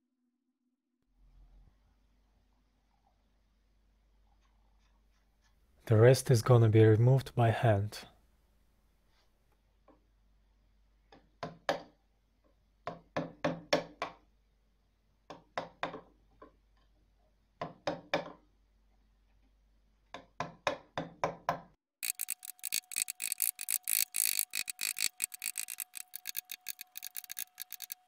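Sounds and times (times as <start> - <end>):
chisel cutting wood: 22.0 - 28.0.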